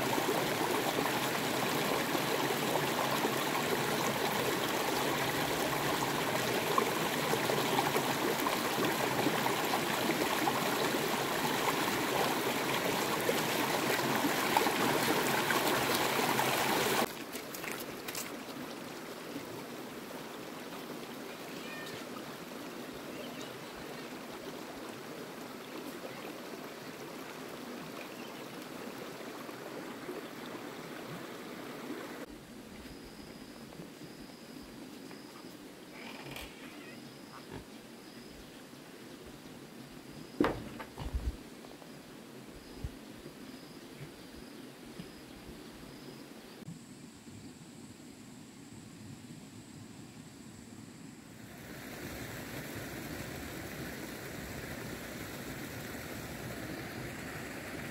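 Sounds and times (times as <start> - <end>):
rushing water: 0.0 - 32.3, 51.4 - 57.9.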